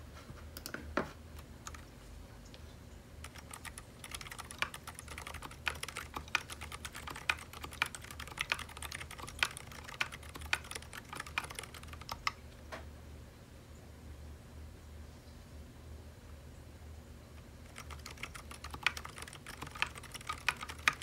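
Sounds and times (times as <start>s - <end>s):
mechanical keyboard typing: 1.6s - 1.8s, 3.2s - 12.4s, 17.6s - 21.0s.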